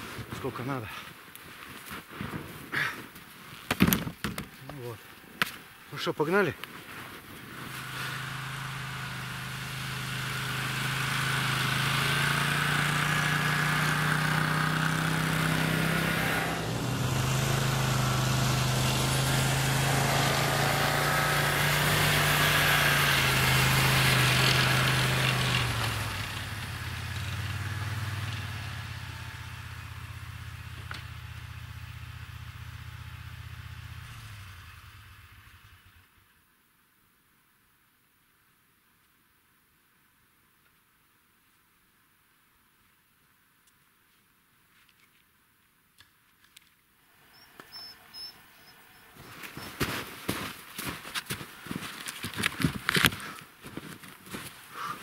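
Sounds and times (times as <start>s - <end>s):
snowmobile engine revving: 7.4s - 34.9s, 47.1s - 53.4s.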